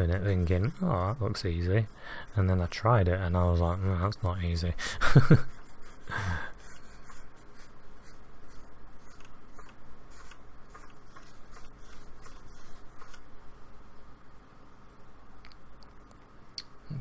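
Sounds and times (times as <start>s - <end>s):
paintbrush scratchy strokes: 0.0s - 13.3s.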